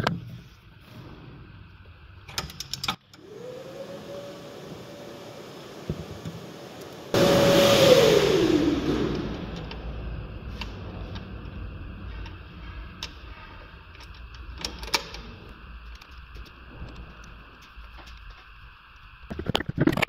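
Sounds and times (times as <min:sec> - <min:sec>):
machine spinning down with whine: 0:03.2 - 0:13.9.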